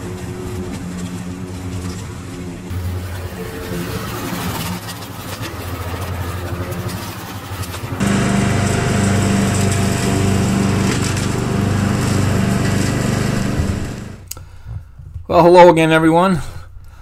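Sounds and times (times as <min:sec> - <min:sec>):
riding lawn mower engine: 0:00.2 - 0:14.3
push lawn mower running: 0:05.7 - 0:14.3.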